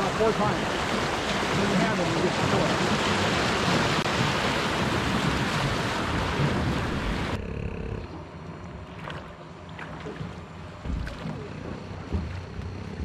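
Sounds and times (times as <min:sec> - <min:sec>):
rushing river water: 0:00.0 - 0:07.4.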